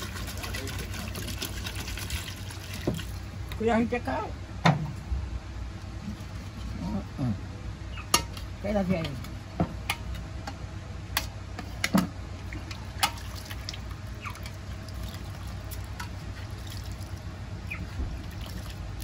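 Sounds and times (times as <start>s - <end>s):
water splashing and dripping: 0.0s - 3.3s, 12.4s - 19.0s.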